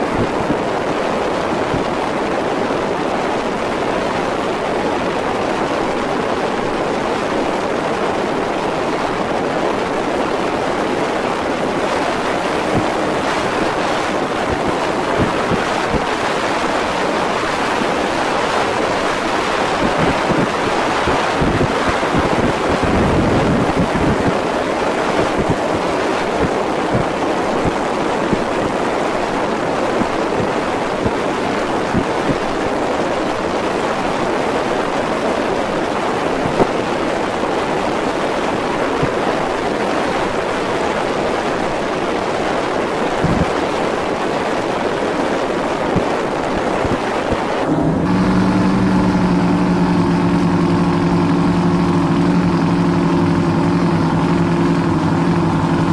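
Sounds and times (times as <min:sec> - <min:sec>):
rush of wind and water: 0:00.0 - 0:55.9
boat motor running: 0:09.7 - 0:33.0, 0:46.0 - 0:55.9
engine idling hum: 0:47.6 - 0:55.9.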